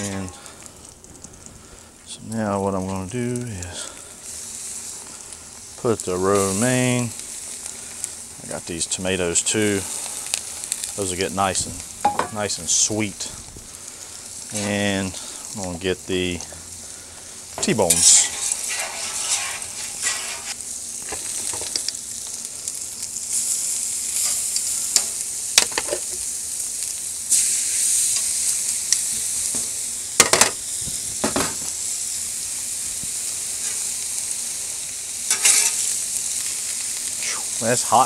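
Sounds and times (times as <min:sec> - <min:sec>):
steaks sizzling on griddle: 0:00.0 - 0:38.0
metal spatula scraping griddle: 0:17.6 - 0:20.6, 0:33.6 - 0:33.9, 0:35.3 - 0:36.0.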